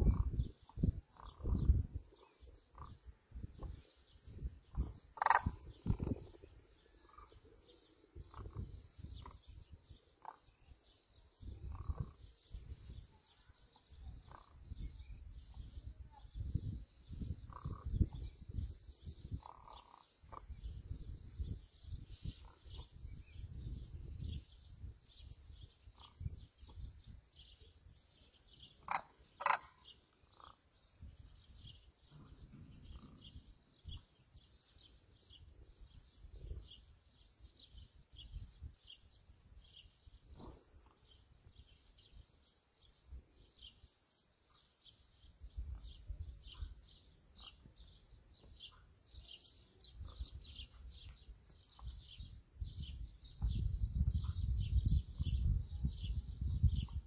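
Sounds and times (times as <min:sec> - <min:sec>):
low rumbling on microphone: 0:00.0 - 0:10.0, 0:49.9 - 0:57.0
birds chirping: 0:00.0 - 0:57.0.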